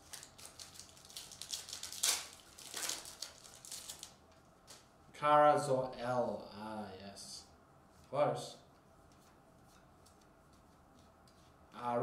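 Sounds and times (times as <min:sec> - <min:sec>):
plastic wrapper torn and crinkled: 0:00.0 - 0:04.8.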